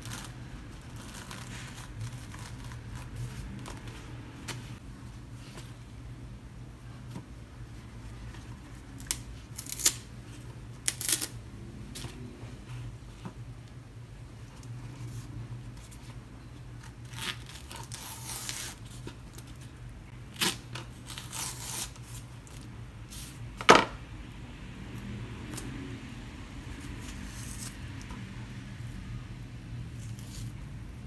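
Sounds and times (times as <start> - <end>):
banana peel rustling and tearing: 0.0 - 4.8, 8.6 - 11.4, 16.8 - 19.7, 20.3 - 23.4, 26.7 - 29.0
low steady hum: 0.0 - 31.0.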